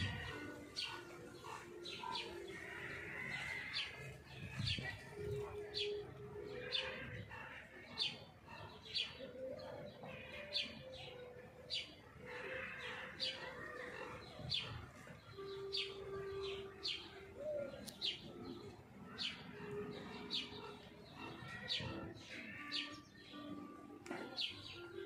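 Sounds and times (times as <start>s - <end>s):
lower held bird notes: 8.0s - 25.0s.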